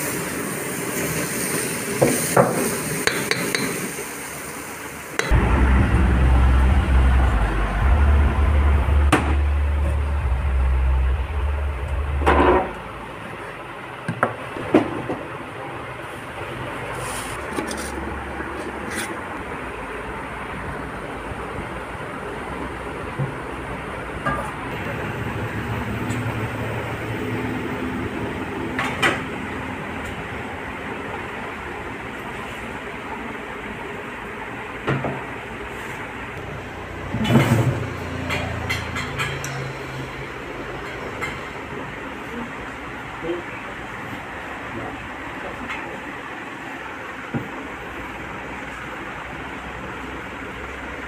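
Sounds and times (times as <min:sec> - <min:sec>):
low engine-like rumble: 0:05.2 - 0:14.0
low background hum: 0:05.3 - 0:13.9.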